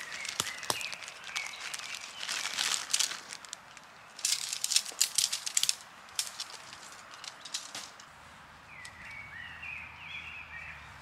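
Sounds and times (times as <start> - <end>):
tent gear crinkling: 0.0 - 8.1
tent poles clicking and rattling: 0.0 - 8.2.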